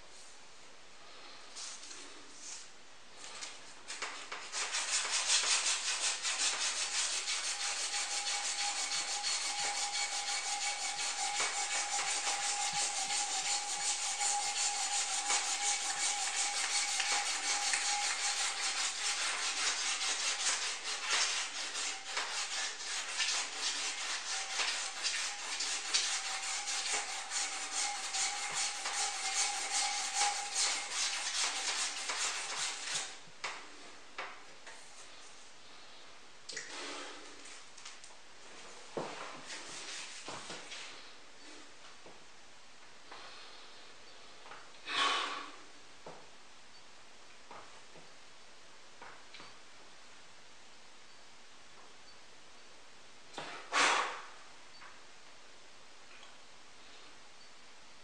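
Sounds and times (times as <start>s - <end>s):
scratchy rubbing on metal rod: 3.9s - 33.2s.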